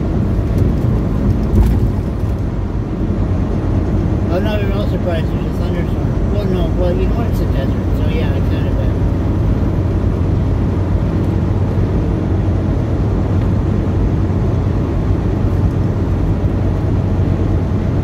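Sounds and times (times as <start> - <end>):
diesel truck engine rumble: 0.0 - 18.0
tyres on road: 0.0 - 18.0.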